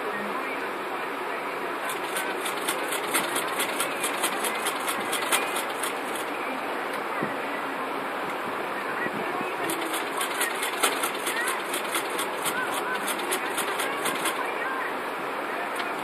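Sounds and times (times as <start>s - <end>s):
paper pages flicking: 1.9s - 6.3s, 9.6s - 14.5s.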